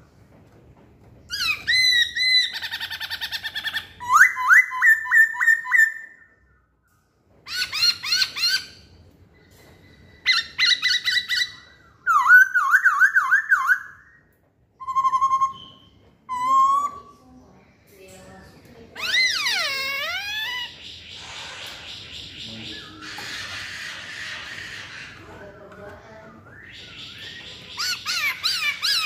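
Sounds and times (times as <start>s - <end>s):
bird singing whistled phrases: 10.4s - 14.2s, 14.8s - 17.2s, 26.4s - 29.0s.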